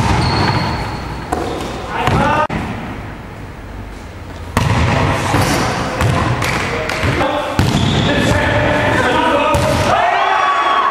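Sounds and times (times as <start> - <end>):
volleyball smacks and bounces: 0.0 - 0.6, 4.5 - 8.5, 9.5 - 10.0.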